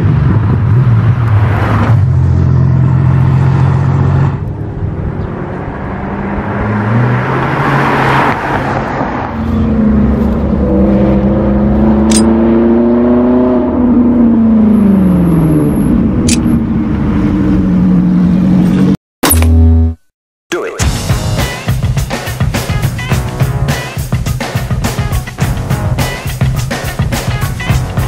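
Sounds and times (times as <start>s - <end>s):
car passing: 0.0s - 18.9s
sports car engine accelerating: 0.0s - 19.9s.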